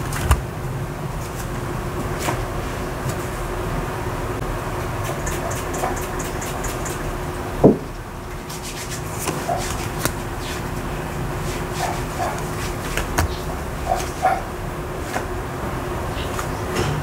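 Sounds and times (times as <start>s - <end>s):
faint steady hum: 0.0s - 17.0s
cards rubbing and clicking: 8.4s - 10.7s, 11.4s - 13.4s.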